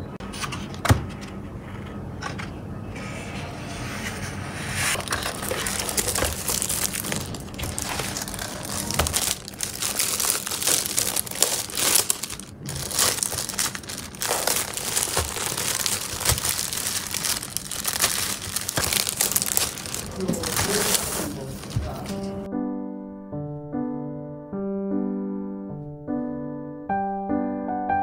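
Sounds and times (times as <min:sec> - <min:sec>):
plastic wrap crinkling: 0:04.9 - 0:22.5.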